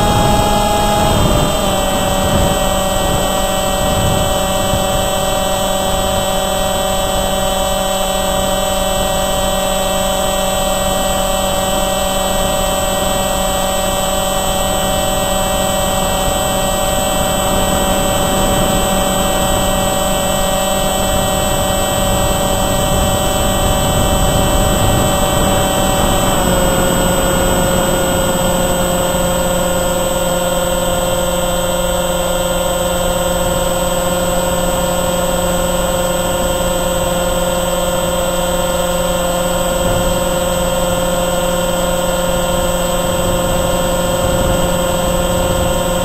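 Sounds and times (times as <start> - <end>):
model plane motor whine: 0.0 - 46.0
rush of air: 15.5 - 30.6.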